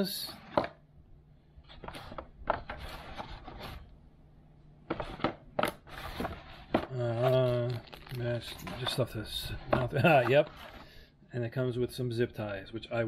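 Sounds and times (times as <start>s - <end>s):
packaging rustles and scrapes: 5.1s - 11.0s.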